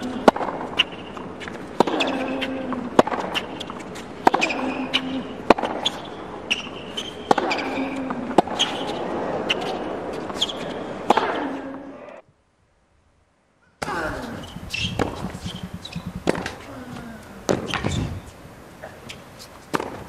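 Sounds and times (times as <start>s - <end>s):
racket striking tennis ball: 0.0s - 11.7s, 13.8s - 18.4s, 19.1s - 20.0s
shoes squeaking on court: 0.0s - 11.8s, 13.8s - 20.0s
player grunting: 13.8s - 15.5s, 16.4s - 17.5s.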